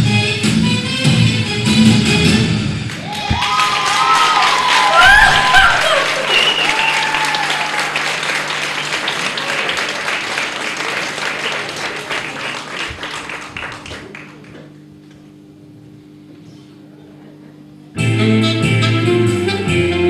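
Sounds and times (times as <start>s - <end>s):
audience applauding: 2.8s - 14.8s
cheers and whoops: 3.0s - 8.1s.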